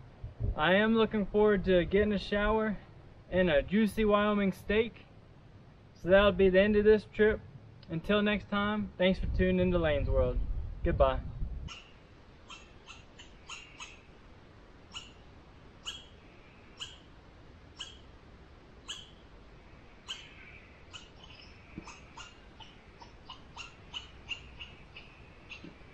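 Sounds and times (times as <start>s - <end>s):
small animal chirping: 11.7s - 14.2s, 14.8s - 17.1s, 17.7s - 18.1s, 18.8s - 19.3s, 19.9s - 25.9s.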